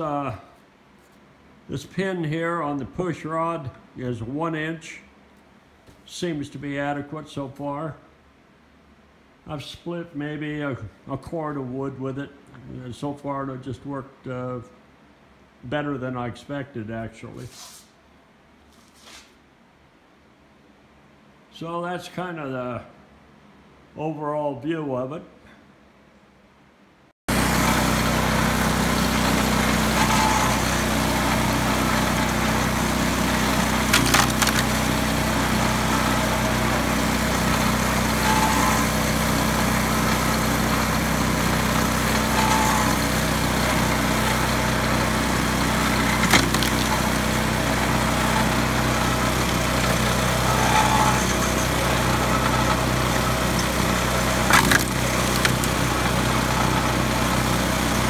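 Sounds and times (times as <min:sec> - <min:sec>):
small engine humming: 0:27.3 - 0:58.0
firewood cracking: 0:33.9 - 0:34.8, 0:46.2 - 0:47.0, 0:54.5 - 0:55.8.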